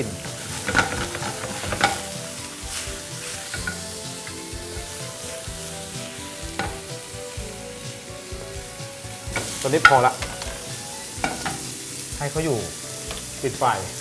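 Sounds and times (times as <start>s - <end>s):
shrimp sizzling in a frying pan: 0.0s - 14.0s
spatula scraping and knocking pan: 0.1s - 12.1s, 12.7s - 13.4s.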